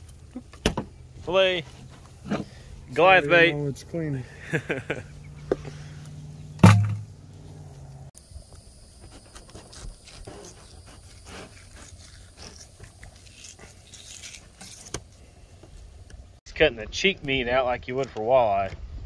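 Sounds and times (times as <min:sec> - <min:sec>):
loud thump: 0:06.6 - 0:07.2
knife scraping fish: 0:09.1 - 0:15.2.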